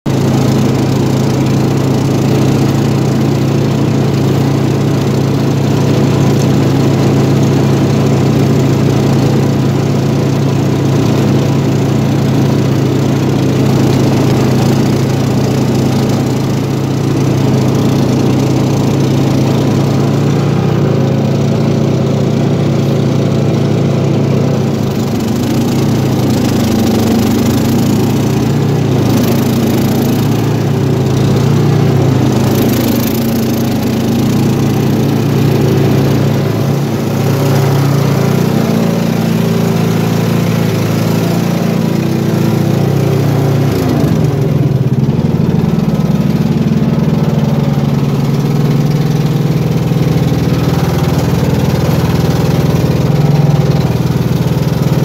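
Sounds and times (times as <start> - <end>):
lawn tractor engine running: 0.0 - 55.0
snowblower throwing snow: 0.1 - 55.0.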